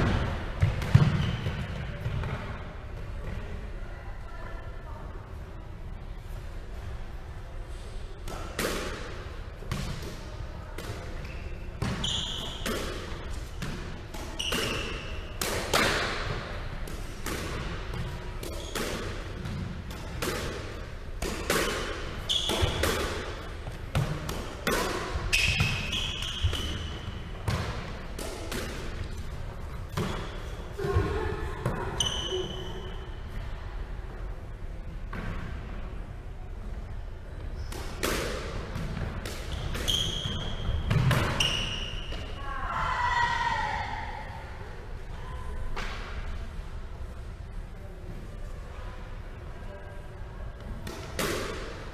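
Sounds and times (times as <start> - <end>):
squash ball smacking: 8.2 - 11.2, 11.8 - 29.2, 37.7 - 42.2, 50.8 - 51.8.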